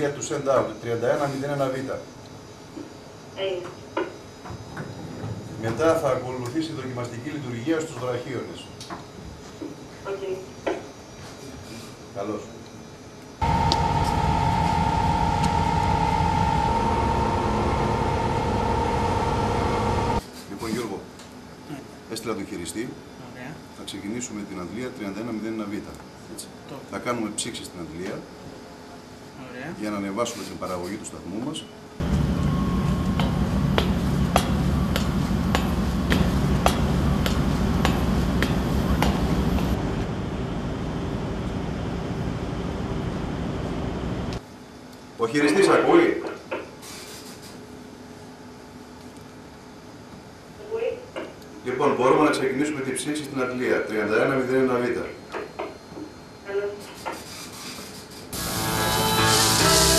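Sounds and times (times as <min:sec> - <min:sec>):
machinery high whine: 0:12.7 - 0:20.2, 0:31.9 - 0:44.4, 0:58.4 - 0:59.9
machinery low rumble: 0:13.4 - 0:20.2, 0:32.0 - 0:44.4
footsteps on metal grating stairs: 0:33.1 - 0:39.8.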